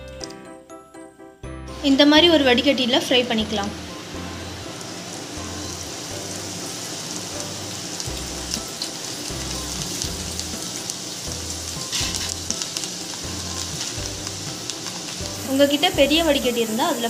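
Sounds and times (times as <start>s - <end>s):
food deep-frying in oil: 2.0s - 17.0s
background music with bass: 7.4s - 8.7s, 9.3s - 12.6s, 13.2s - 16.5s.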